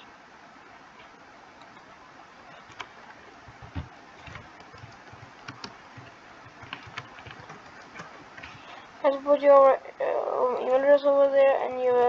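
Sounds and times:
background hiss: 0:00.0 - 0:12.0
typing on computer keyboard: 0:03.6 - 0:08.6.

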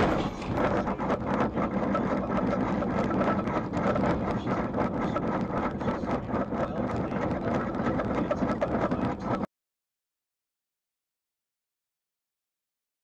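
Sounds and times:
cabin knocks and rattles: 0:00.0 - 0:00.8.

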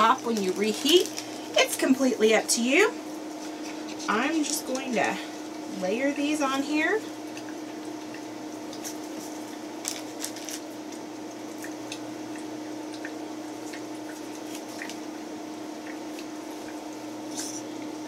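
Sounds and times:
cheese slices rustling on paper: 0:00.0 - 0:01.9, 0:08.8 - 0:10.7
steady low hum: 0:00.0 - 0:18.0.

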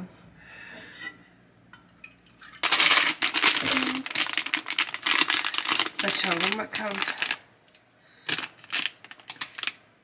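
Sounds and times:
milk pouring into saucepan: 0:01.9 - 0:03.2.

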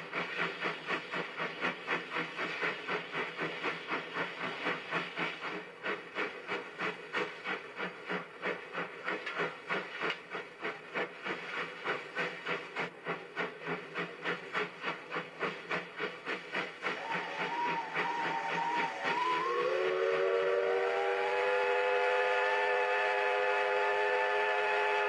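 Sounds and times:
hiss of steam: 0:00.0 - 0:25.0
steam locomotive exhaust chuffing: 0:00.0 - 0:25.0
steam whistle: 0:16.9 - 0:25.0.

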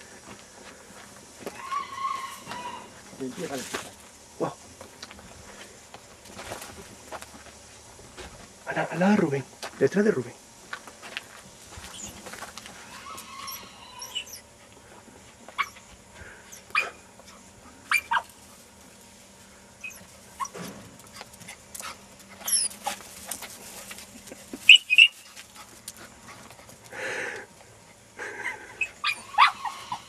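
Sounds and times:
dog yelping: 0:12.9 - 0:14.5, 0:15.6 - 0:15.8, 0:17.9 - 0:18.3, 0:19.8 - 0:20.6, 0:22.4 - 0:22.9, 0:28.8 - 0:30.0.

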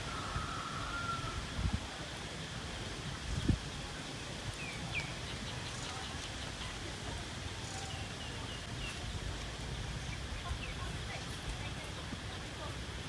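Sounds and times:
background hiss and rumble: 0:00.0 - 0:13.0
small birds chirping: 0:03.2 - 0:12.8.

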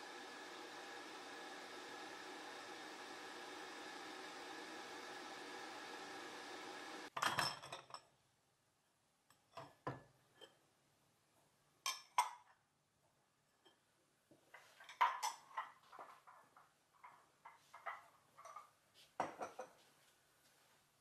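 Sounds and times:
electric kettle hissing: 0:00.0 - 0:07.1
dishes clinking on dish rack: 0:07.2 - 0:08.0.

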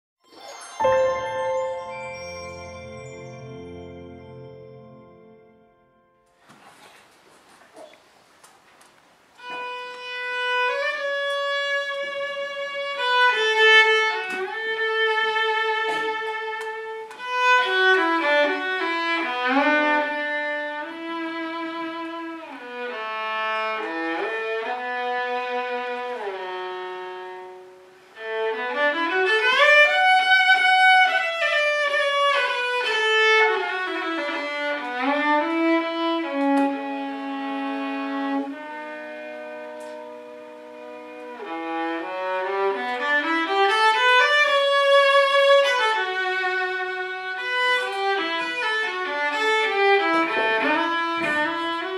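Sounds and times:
solo violin slow melody: 0:00.3 - 0:06.1, 0:09.4 - 0:51.9.

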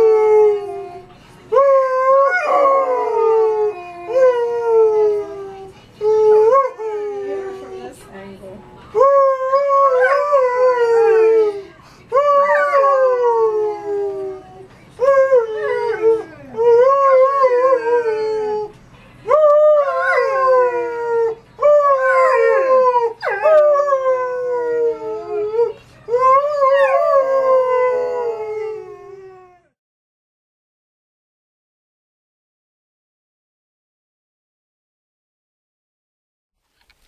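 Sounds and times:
dog howling: 0:09.0 - 0:18.7, 0:19.3 - 0:29.8.

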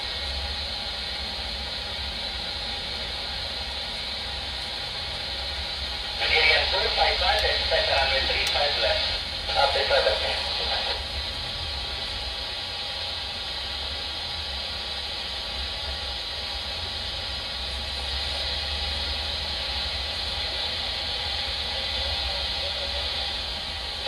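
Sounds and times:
radio static hiss: 0:05.2 - 0:24.0.

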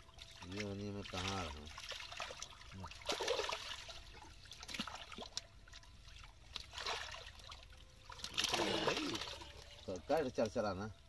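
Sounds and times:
shallow water splashing: 0:00.0 - 0:10.6.

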